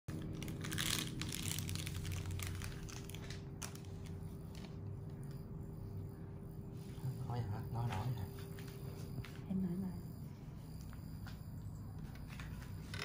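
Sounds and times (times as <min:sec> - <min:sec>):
plastic pouch crinkling: 0:00.1 - 0:04.7
steady low hum: 0:00.1 - 0:13.0.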